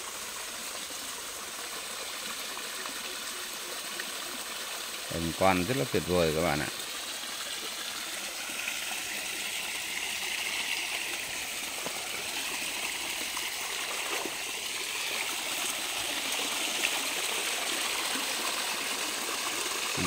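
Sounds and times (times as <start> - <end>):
stream running over boulders: 0.0 - 20.0.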